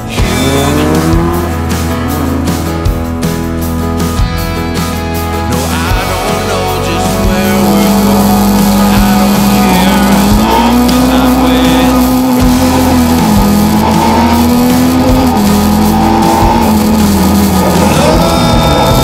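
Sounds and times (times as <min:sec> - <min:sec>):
background music with bass line: 0:00.0 - 0:19.0
race car engine running: 0:00.0 - 0:19.0.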